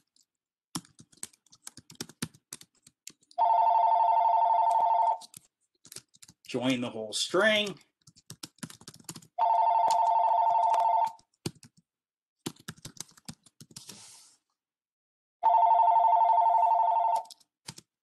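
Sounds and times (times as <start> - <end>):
keyboard typing clicks: 0.0 - 3.4, 4.6 - 6.4, 8.0 - 11.8, 12.5 - 13.8, 17.1 - 17.9
electronic telephone ringing: 3.4 - 5.2, 9.4 - 11.2, 15.4 - 17.3.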